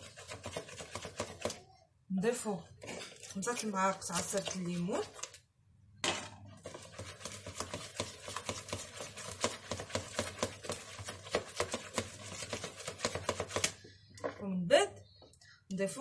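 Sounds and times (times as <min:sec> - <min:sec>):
whisk tapping against bowl: 0:00.0 - 0:01.6, 0:06.6 - 0:13.8.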